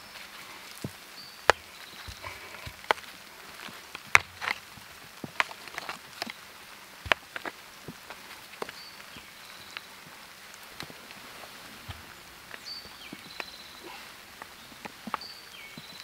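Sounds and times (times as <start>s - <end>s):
scuffing on dirt: 0.0s - 16.0s
stones clacking together: 0.7s - 6.4s, 7.0s - 9.2s.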